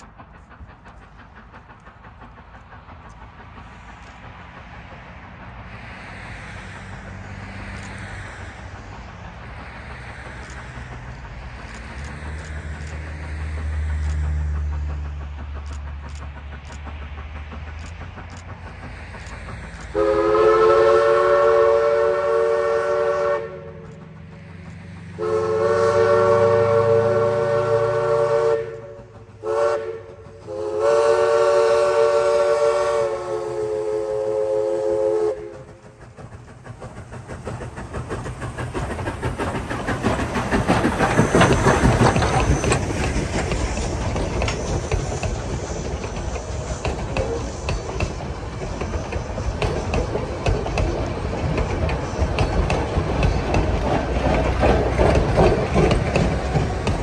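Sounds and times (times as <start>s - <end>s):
train running noise: 0.0s - 57.0s
steam whistle blasts: 19.9s - 23.8s, 25.2s - 35.7s.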